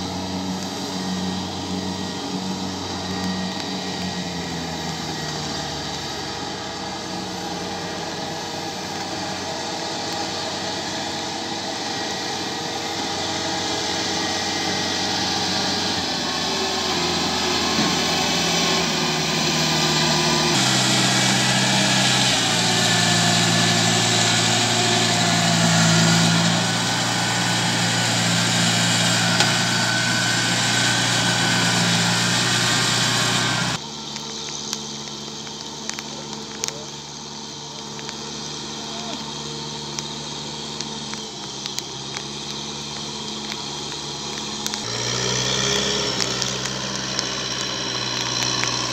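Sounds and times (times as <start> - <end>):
combine harvester engine running: 0.0 - 48.9.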